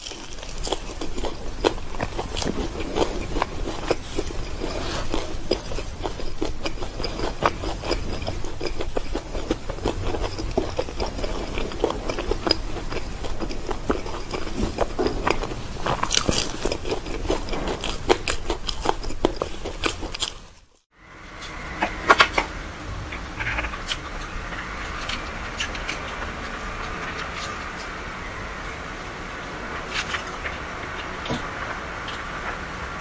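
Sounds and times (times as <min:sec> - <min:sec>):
pastry being bitten and chewed: 0:00.0 - 0:20.9.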